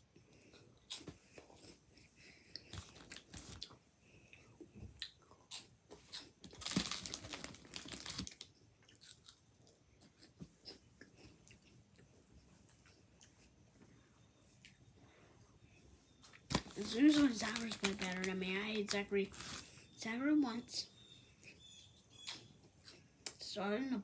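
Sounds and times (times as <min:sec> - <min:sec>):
child crunching a snack: 0:02.5 - 0:03.8, 0:05.0 - 0:12.1, 0:16.4 - 0:18.4, 0:19.3 - 0:19.8.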